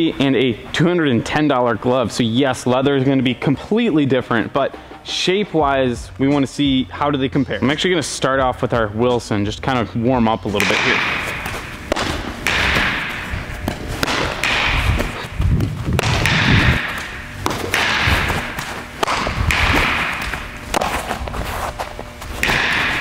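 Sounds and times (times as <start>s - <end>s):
ball thumping into leather glove: 10.6s - 23.0s.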